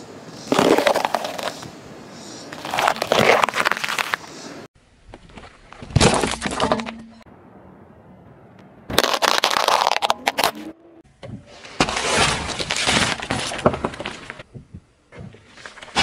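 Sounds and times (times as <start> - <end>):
watermelon cracking and squashing: 0.5 - 1.6, 2.6 - 4.2, 8.9 - 10.6
water beads cracking under tyre: 0.5 - 1.7, 8.9 - 10.5.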